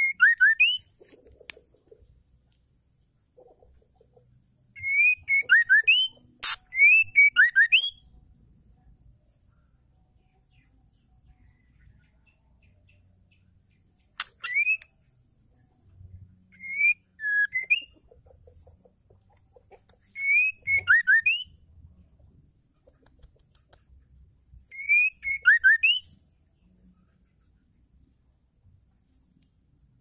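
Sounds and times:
bird whistling calls: 4.8 - 8.0, 14.2 - 14.8, 16.6 - 17.9, 20.1 - 21.5, 24.7 - 26.1.

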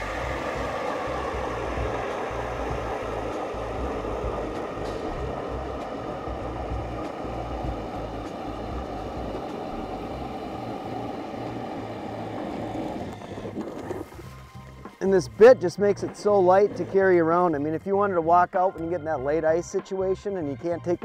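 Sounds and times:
motor whine: 0.0 - 15.0.

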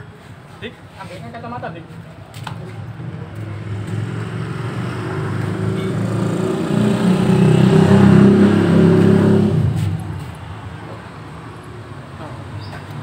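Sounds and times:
scooter engine revving: 3.0 - 10.1.

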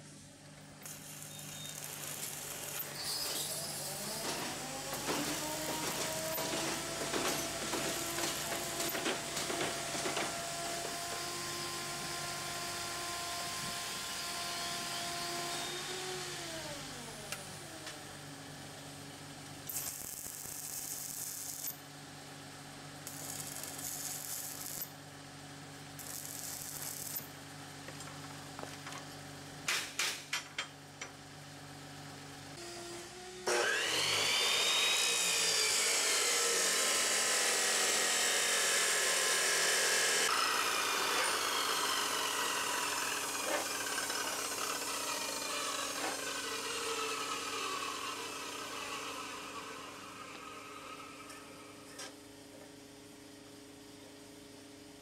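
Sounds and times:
welding arc crackling: 0.8 - 10.4, 19.7 - 21.8, 23.0 - 25.0, 26.0 - 27.3
cut-off saw cutting steel: 0.9 - 17.9, 32.6 - 52.0.

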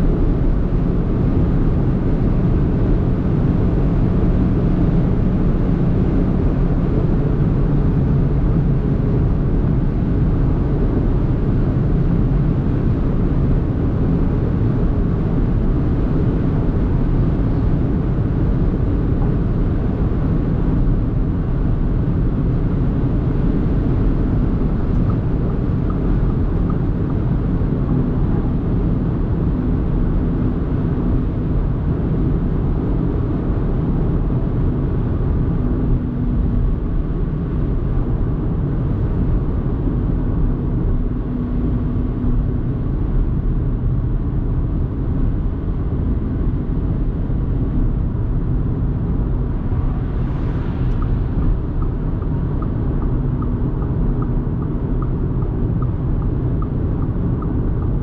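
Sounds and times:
low car engine hum: 0.0 - 58.0
faint hum tone: 47.5 - 58.0.

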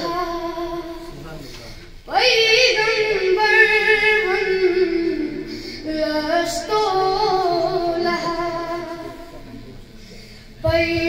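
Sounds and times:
boy singing unaccompanied: 0.0 - 1.1, 2.1 - 9.4, 10.6 - 11.0.

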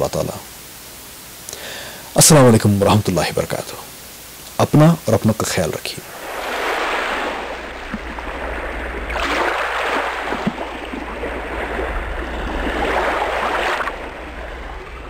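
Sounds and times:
rushing water: 4.6 - 15.0
low steady hum: 6.0 - 15.0.

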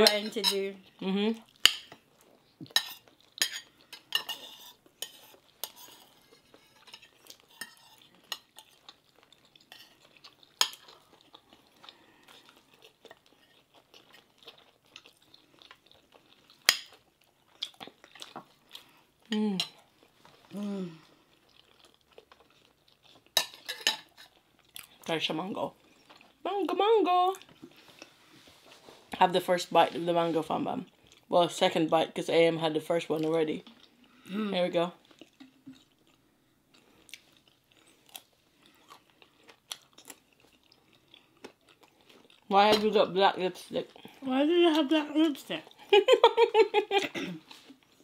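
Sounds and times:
person humming: 20.5 - 21.1.

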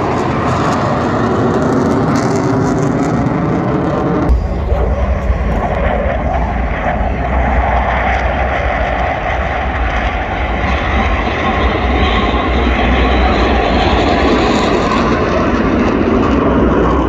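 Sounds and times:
fighter jets flying by: 0.0 - 17.0.

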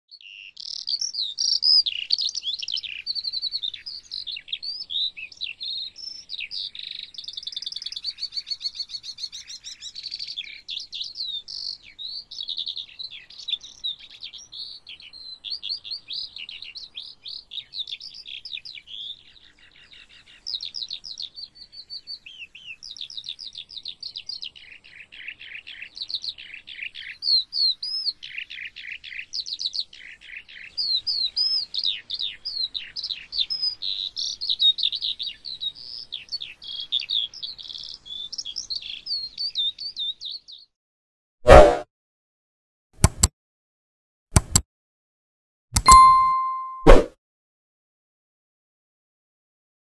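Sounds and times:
lark singing: 45.8 - 46.8.

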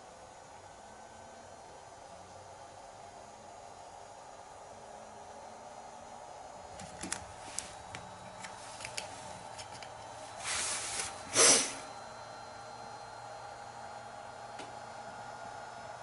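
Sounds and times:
short hissing whooshes: 10.4 - 11.8.

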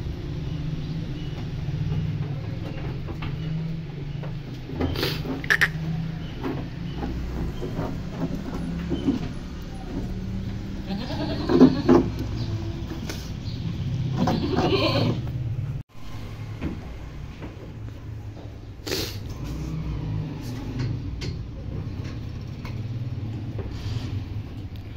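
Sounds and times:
goats bleating: 10.8 - 12.0, 14.2 - 15.2.

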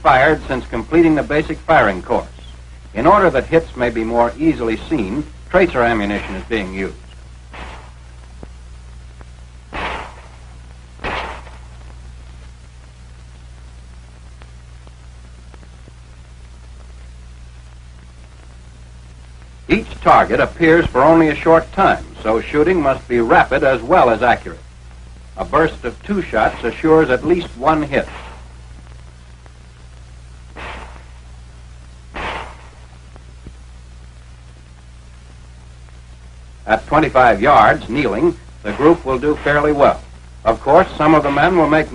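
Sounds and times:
low hum and hiss: 0.0 - 41.9
handgun shots: 7.5 - 8.0, 9.7 - 10.4, 11.0 - 11.7, 28.1 - 28.5, 30.6 - 31.2, 32.2 - 32.9.

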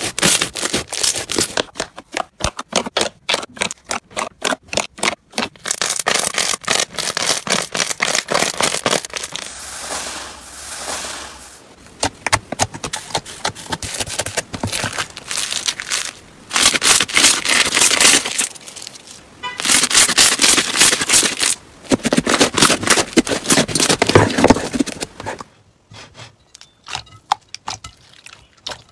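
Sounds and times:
slime crackling and popping: 0.0 - 9.6, 12.0 - 19.0.

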